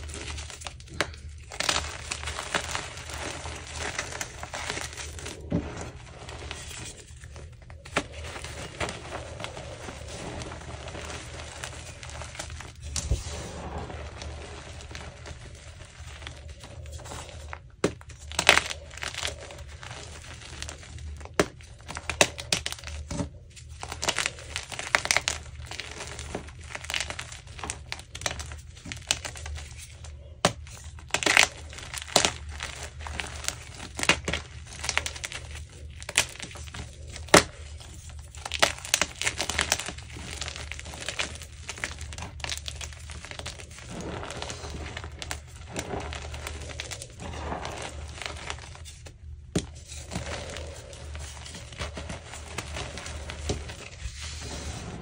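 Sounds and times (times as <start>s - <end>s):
low hum: 0.0s - 21.7s
chalk crunching and crackling: 0.0s - 55.0s.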